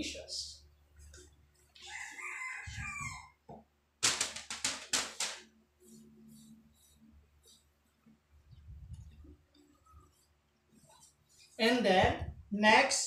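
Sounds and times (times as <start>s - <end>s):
rooster crowing: 1.8s - 3.4s.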